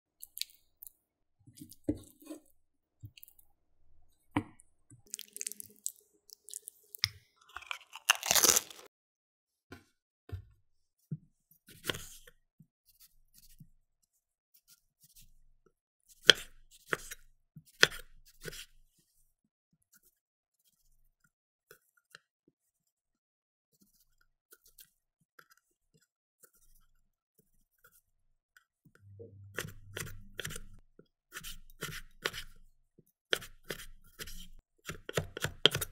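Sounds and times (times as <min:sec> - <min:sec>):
knife slicing tomato: 0:17.8 - 0:18.7, 0:29.5 - 0:32.6, 0:33.3 - 0:35.9.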